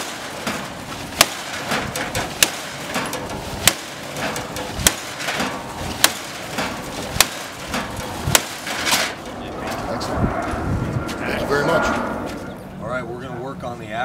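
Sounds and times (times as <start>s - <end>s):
sledgehammer striking car metal: 0.0s - 9.2s.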